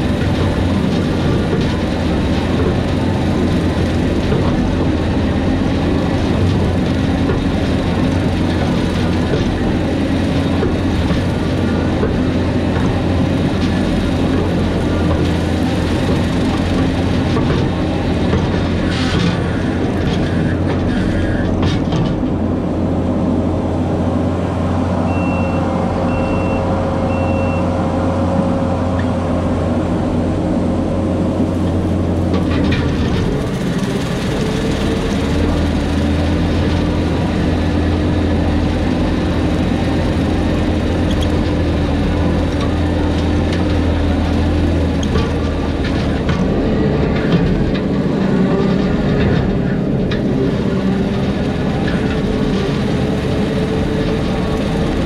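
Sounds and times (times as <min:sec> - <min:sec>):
brush mower engine droning: 0:00.0 - 0:55.0
short high beeps: 0:25.1 - 0:27.7.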